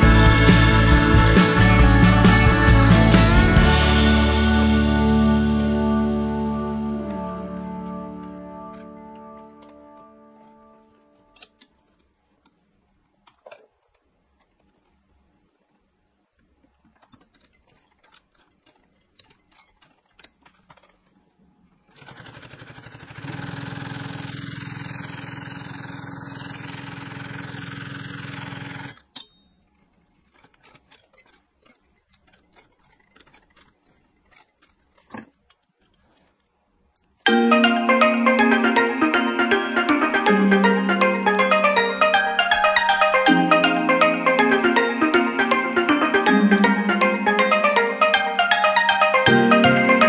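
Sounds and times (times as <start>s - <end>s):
sewing machine stitching: 16.4s - 37.2s.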